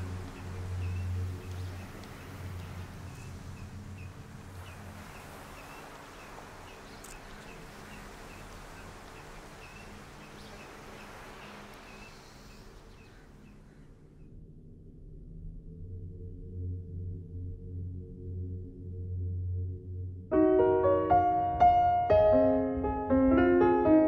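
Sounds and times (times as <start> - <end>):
steady wash of noise: 0.0 - 13.4.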